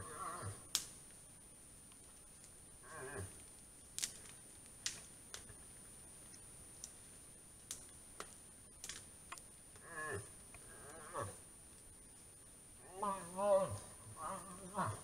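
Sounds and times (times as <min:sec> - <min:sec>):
moose moaning call: 0:09.8 - 0:11.4, 0:12.8 - 0:15.0.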